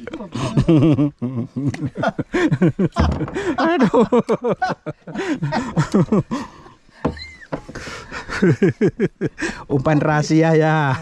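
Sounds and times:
men talking: 9.4s - 11.0s.

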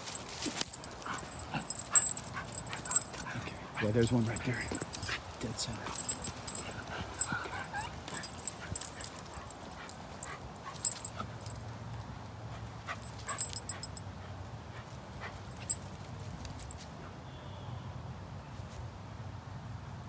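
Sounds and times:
dog whining: 6.0s - 8.9s.

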